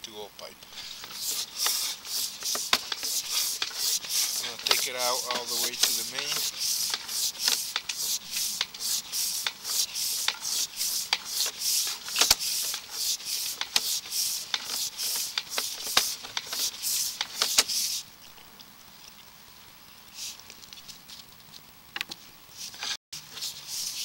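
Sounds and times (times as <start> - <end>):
cable rasping rub: 0.6 - 18.0, 22.6 - 24.0.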